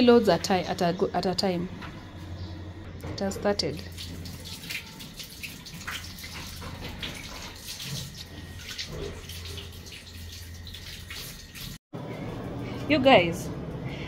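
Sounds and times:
water splashing in washing machine: 0:03.4 - 0:11.8.

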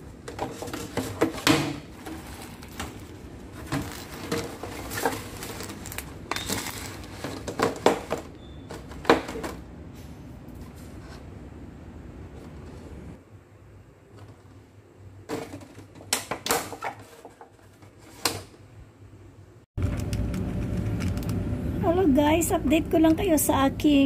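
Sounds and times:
low steady rumble: 0:18.9 - 0:24.0.

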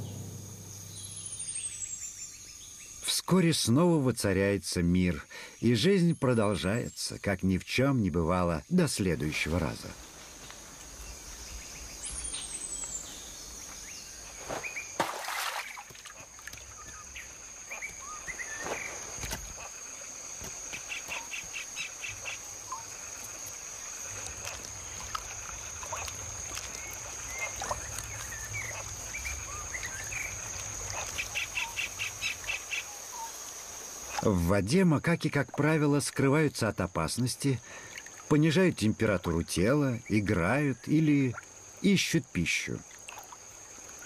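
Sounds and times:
rapid bird trills: 0:26.7 - 0:33.4.

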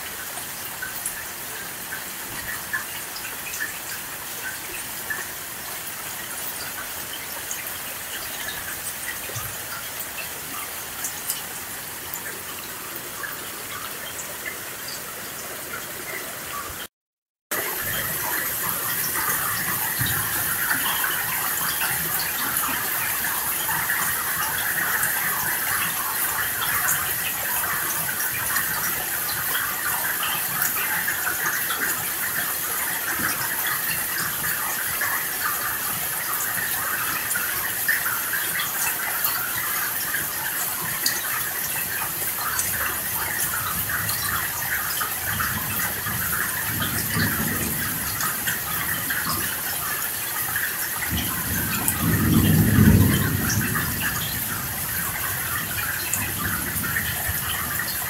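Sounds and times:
steady rain: 0:00.0 - 0:16.9, 0:17.5 - 0:58.0
thunder rumble: 0:46.1 - 0:49.6, 0:51.1 - 0:58.0.

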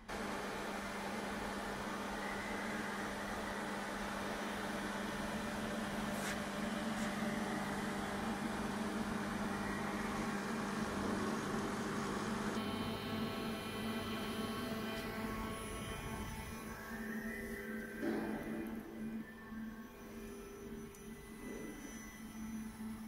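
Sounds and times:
shop machinery hum: 0:00.0 - 0:23.0
steady tones: 0:12.5 - 0:23.0.

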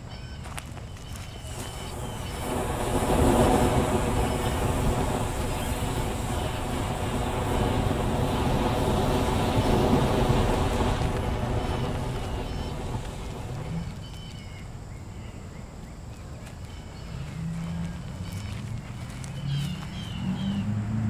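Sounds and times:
battery venting flame rushing: 0:01.4 - 0:14.9.

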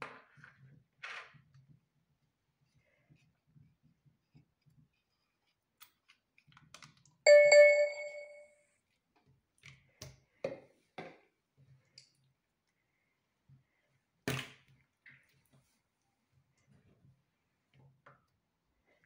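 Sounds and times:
short ringing ping: 0:07.3 - 0:08.4.

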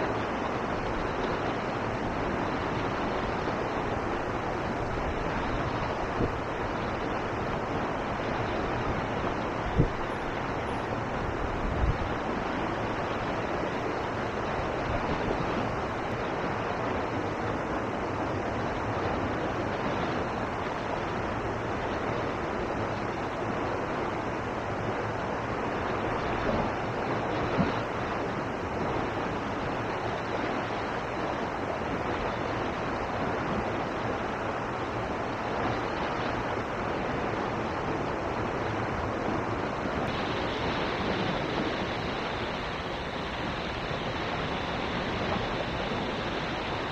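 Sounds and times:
river water pouring over weir: 0:00.0 - 0:46.9.

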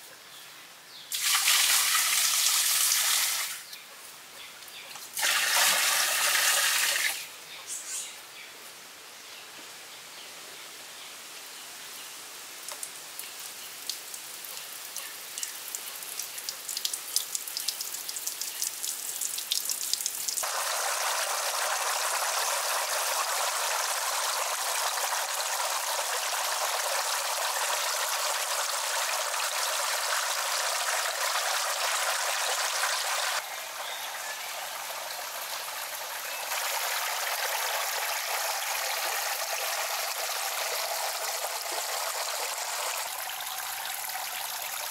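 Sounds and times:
water dripping and splashing: 0:01.1 - 0:03.5, 0:12.6 - 0:33.8, 0:34.5 - 0:44.9
water trickling into pond: 0:01.1 - 0:03.8, 0:04.6 - 0:07.4, 0:12.6 - 0:44.9.

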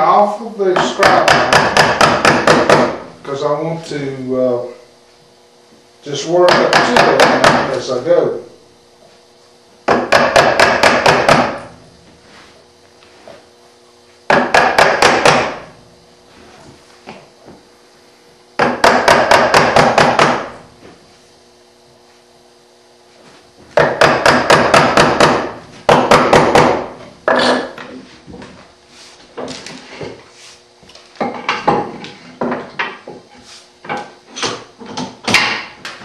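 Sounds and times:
hammer tapping chisel into wood: 0:00.8 - 0:03.0, 0:06.5 - 0:07.8, 0:09.9 - 0:11.6, 0:14.3 - 0:15.6, 0:18.6 - 0:20.5, 0:23.8 - 0:27.0.

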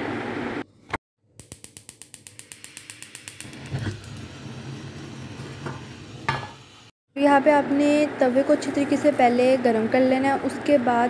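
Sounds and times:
gas igniter clicking: 0:01.4 - 0:04.4
burner flame hissing: 0:01.4 - 0:06.9.

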